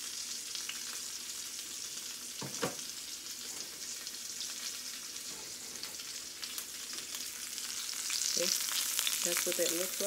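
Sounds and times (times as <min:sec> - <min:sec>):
fish sizzling in a skillet: 0:00.0 - 0:10.0.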